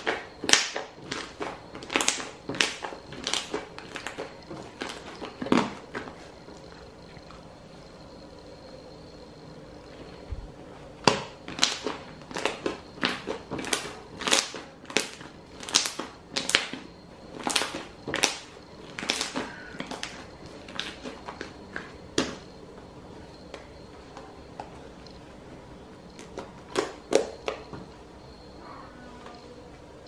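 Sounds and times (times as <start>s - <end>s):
slime popping and crackling: 0.0s - 6.1s, 11.0s - 22.4s.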